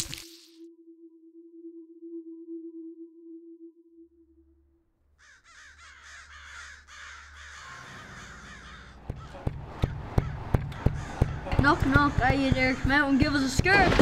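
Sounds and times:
crows cawing: 5.2 - 13.8
sharp knocks: 8.9 - 14.0.

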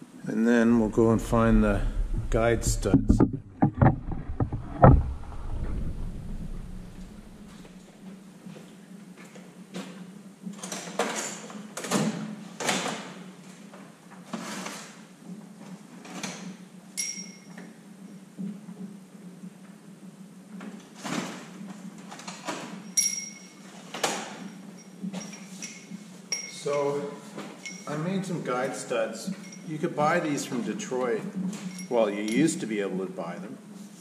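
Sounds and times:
steady low hum: 0.2 - 8.0
knocks and scrapes: 0.7 - 7.9
metallic clinks: 17.0 - 17.5, 22.9 - 23.6, 24.4 - 28.0, 29.3 - 29.7, 31.6 - 32.5.

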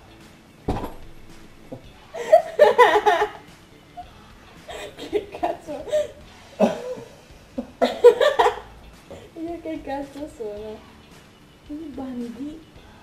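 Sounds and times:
people laughing: 2.2 - 3.4, 4.7 - 8.7.

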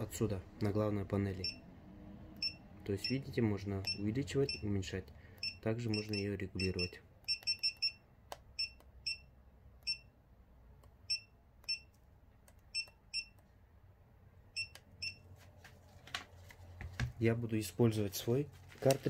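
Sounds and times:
stylus tapping touchscreen: 2.4 - 13.7
short high electronic beeps: 5.4 - 8.0.

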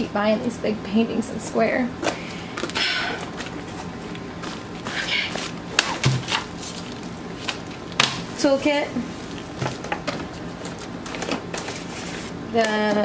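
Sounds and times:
packaging rustling: 2.6 - 8.3.

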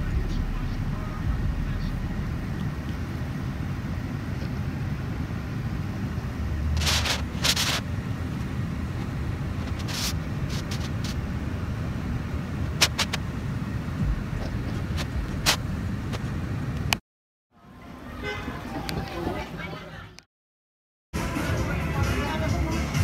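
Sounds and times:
car cabin rumble: 0.0 - 16.9.

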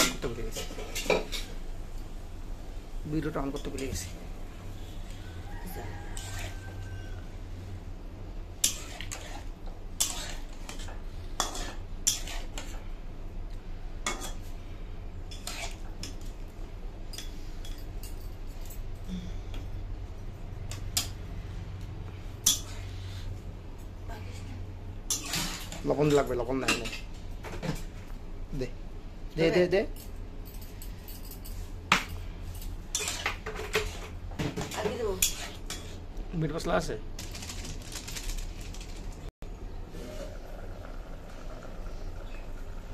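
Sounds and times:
low steady hum: 0.0 - 36.4
metal spoon stirring in wok: 5.9 - 7.0, 8.6 - 12.8, 15.3 - 16.3, 22.4 - 23.3, 25.1 - 26.3, 32.9 - 34.2, 35.0 - 36.0
spoon clinking and scraping pan: 10.0 - 12.8, 32.9 - 34.2.

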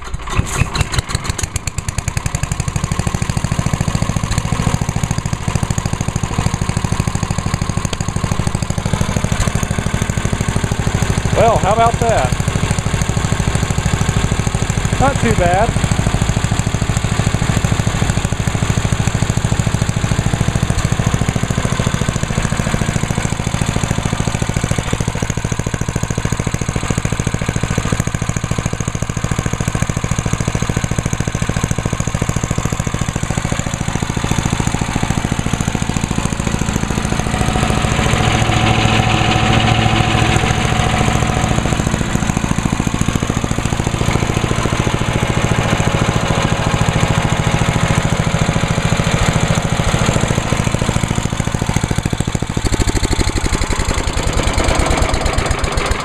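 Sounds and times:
chipper shredder engine running: 0.0 - 56.0.

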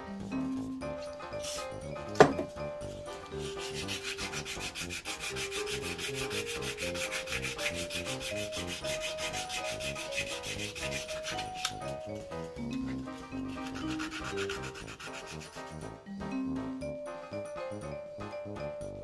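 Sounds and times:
sandpaper scratching on metal: 2.9 - 12.2, 13.0 - 15.8.

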